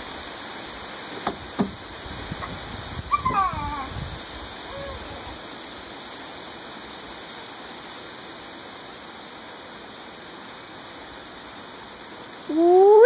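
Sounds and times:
steady background hiss: 0.0 - 13.0
toddler whining: 3.1 - 4.0, 4.6 - 5.4.

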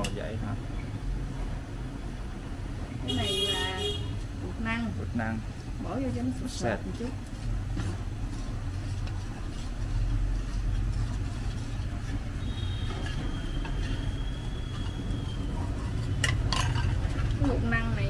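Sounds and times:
steady low rumble: 4.2 - 18.0.

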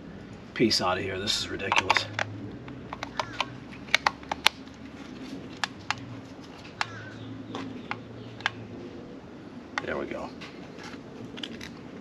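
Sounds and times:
low steady hum: 0.0 - 12.0
fingernails picking at tape: 3.0 - 4.6.

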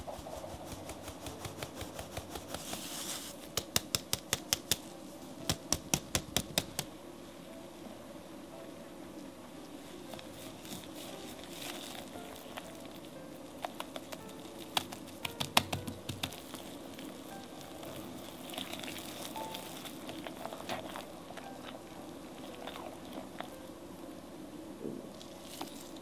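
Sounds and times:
whisk stirring wet batter: 0.0 - 4.7.

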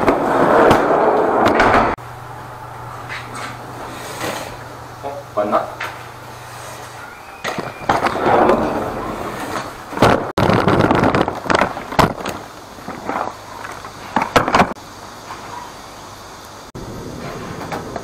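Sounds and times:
vacuum casters rolling and rattling: 3.0 - 9.9.

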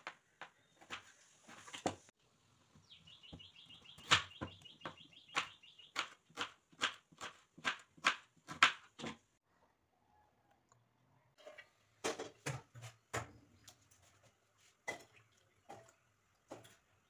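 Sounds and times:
bird chirping: 2.7 - 6.2
knife chopping on a wooden board: 4.0 - 9.2.

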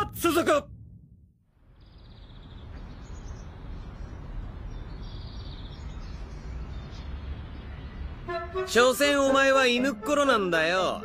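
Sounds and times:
faint bird chirps: 1.6 - 8.2.

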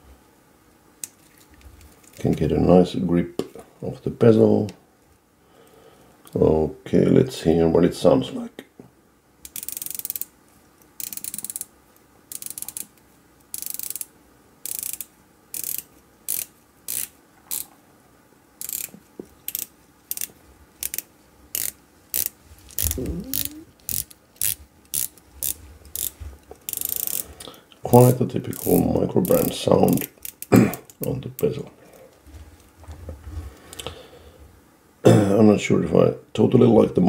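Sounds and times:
watch bezel ratcheting clicks: 9.4 - 10.3, 11.0 - 11.7, 12.3 - 12.9, 13.5 - 17.7, 18.6 - 18.9, 19.5 - 27.2, 28.6 - 31.5.

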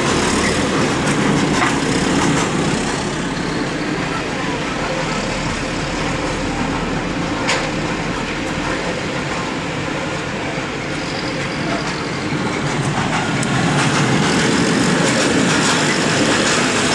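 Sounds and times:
clicking clatter of wheels: 0.0 - 3.2, 11.4 - 16.9
freight wagons rolling on rails: 0.0 - 16.9.

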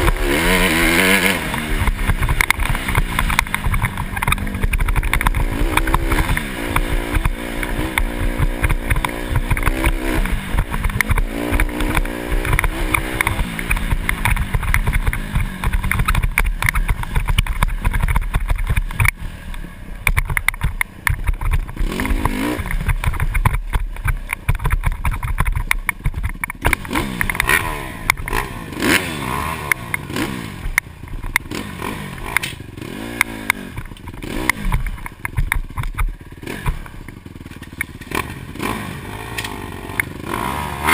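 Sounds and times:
dirt bike engine revving: 0.0 - 40.9
knocks and clatter from bumps: 1.6 - 19.2, 20.0 - 28.4, 33.2 - 38.3.

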